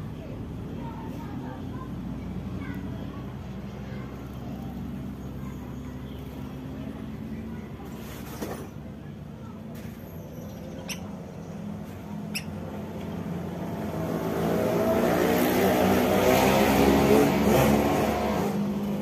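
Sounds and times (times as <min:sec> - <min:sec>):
vehicle engine passing: 0:11.1 - 0:19.0.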